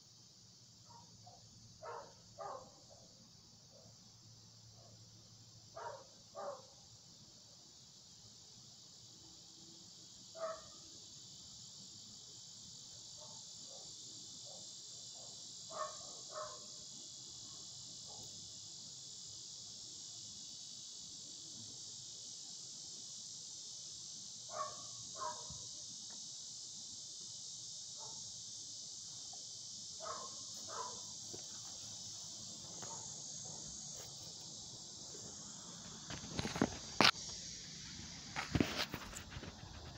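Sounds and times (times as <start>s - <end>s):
insects chorus: 0.0s - 39.9s
distant dog barking: 0.9s - 4.0s, 5.8s - 6.7s, 10.4s - 10.8s, 13.2s - 16.7s, 24.5s - 25.6s, 30.0s - 31.6s, 32.6s - 34.1s.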